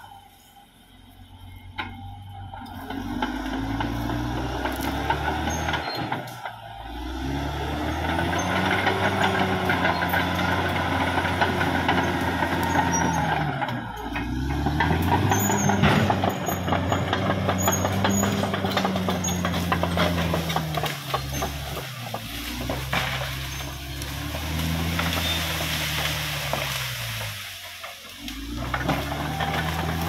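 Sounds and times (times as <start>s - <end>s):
bulldozer diesel engine under load: 0.0s - 30.0s.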